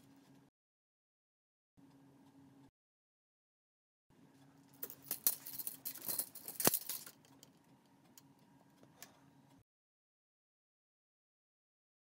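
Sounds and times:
tape measure clicking and rattling: 4.8s - 7.4s.

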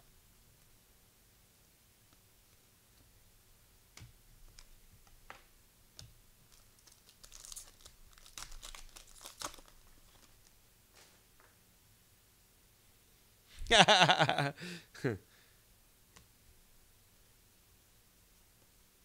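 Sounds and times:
plastic wrapper crinkling and tearing: 6.5s - 10.5s.

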